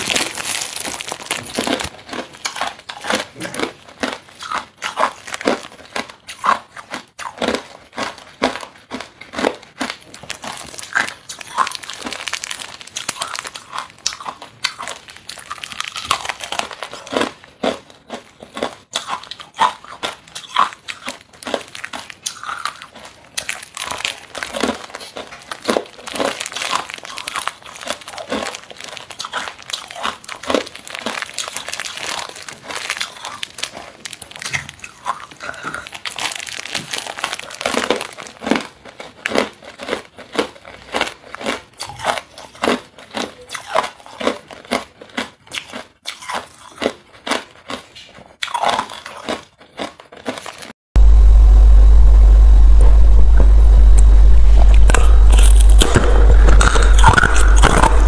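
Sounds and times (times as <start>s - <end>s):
plastic bag crinkling: 0.0s - 6.6s, 7.4s - 17.4s, 21.0s - 41.5s, 54.0s - 58.0s
ice cubes crunching: 0.0s - 50.7s, 54.4s - 58.0s.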